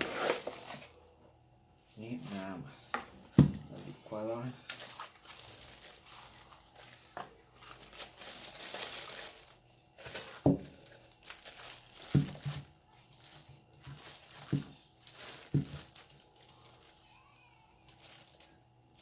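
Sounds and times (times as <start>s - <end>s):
plastic wrapping crinkling: 4.0s - 19.0s.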